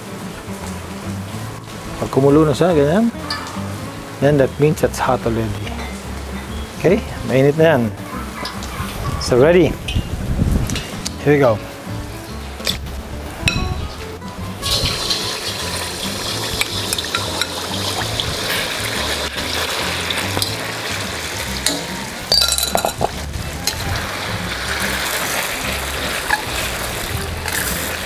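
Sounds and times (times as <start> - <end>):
background music: 0.0 - 28.0
metal utensil clinking on wok: 3.2 - 3.7, 16.6 - 17.7, 21.6 - 23.8
chicken sizzling in hot oil: 14.6 - 28.0.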